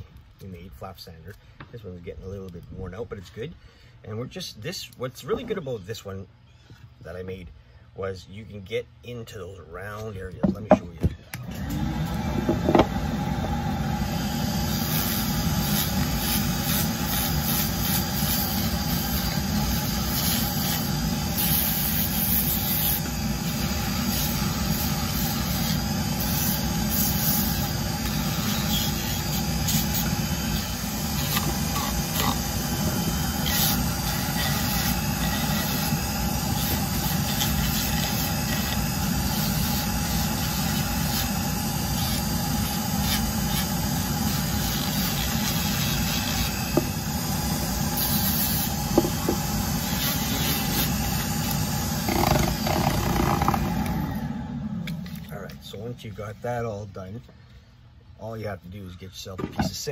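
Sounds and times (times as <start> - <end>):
rotary tool motor whine: 11.3 - 55.3
flap sander scratching wood: 14.4 - 54.1.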